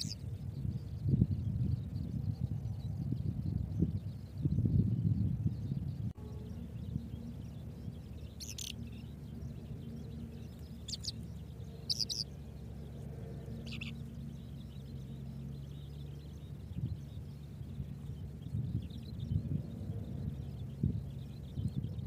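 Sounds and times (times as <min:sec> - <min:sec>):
high bird chirps: 0:00.0 - 0:00.2, 0:06.2 - 0:12.5, 0:13.5 - 0:19.4
steady low hum: 0:00.0 - 0:22.0.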